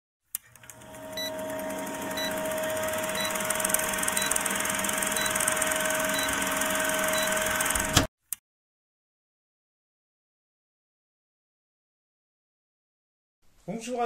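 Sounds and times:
film projector clattering: 0.4s - 8.1s
steady hum: 0.7s - 8.1s.

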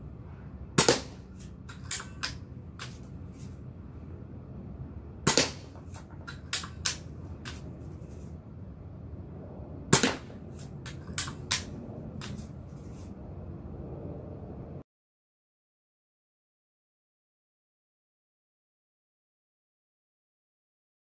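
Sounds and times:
air pistol shots: 0.8s - 3.0s, 5.2s - 7.7s, 9.9s - 12.5s.

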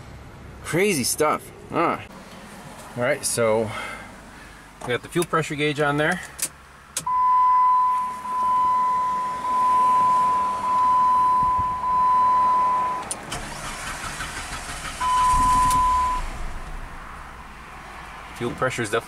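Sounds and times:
dashboard warning chime: 7.0s - 13.1s, 15.0s - 16.3s
engine starter cranking: 13.0s - 16.7s.

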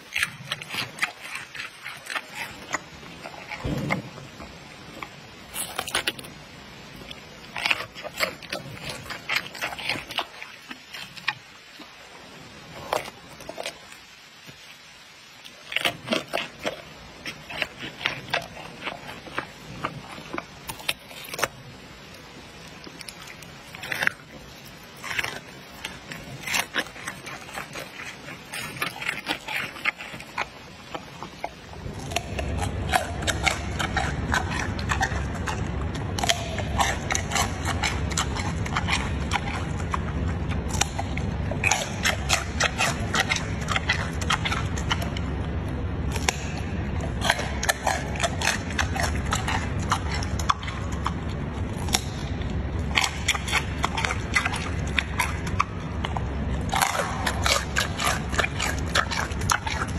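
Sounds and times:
panda crunching a carrot: 0.0s - 12.0s, 12.6s - 14.6s, 15.3s - 59.9s
steady low rumble: 30.3s - 59.9s.

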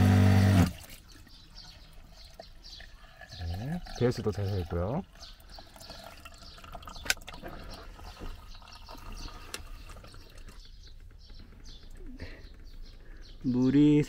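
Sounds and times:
water running from faucet: 3.0s - 7.0s.

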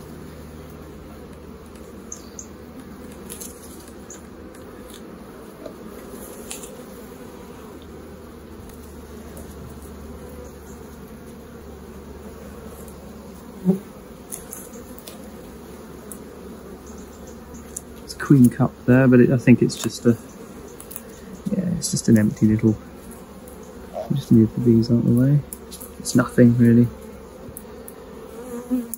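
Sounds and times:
bees humming: 0.0s - 28.9s
hive tool clicks and scrapes: 2.8s - 6.8s, 14.2s - 15.3s, 19.7s - 22.3s, 25.1s - 26.0s.

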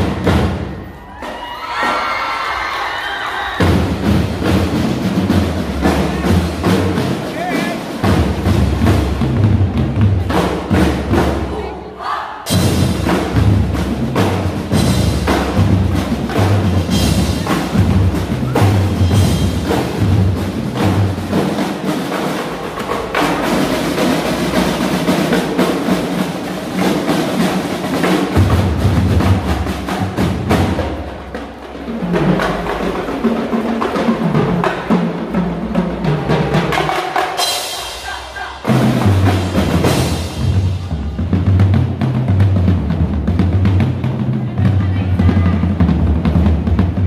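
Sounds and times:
marching drumline cadence: 0.0s - 47.0s.

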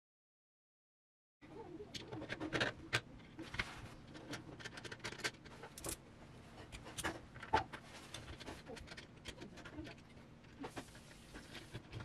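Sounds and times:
plastic parts clicking and knocking: 1.9s - 6.0s, 6.7s - 12.0s.

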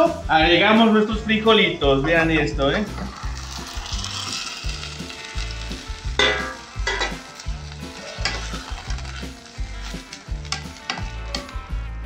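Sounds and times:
beans sizzling in hot oil: 2.3s - 12.0s
spoon scraping a pot: 3.0s - 11.5s.

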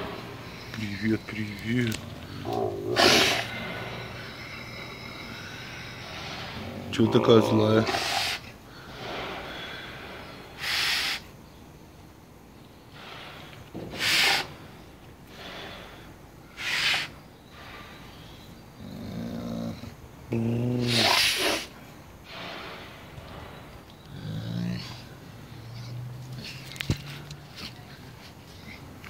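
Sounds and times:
wolf growling: 0.0s - 10.8s, 18.7s - 29.0s
wolf snorting: 0.0s - 11.2s, 20.8s - 29.0s.

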